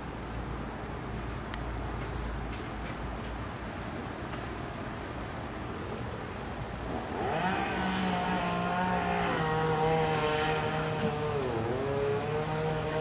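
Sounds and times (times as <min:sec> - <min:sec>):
chainsaw engine revving: 0:06.9 - 0:13.0.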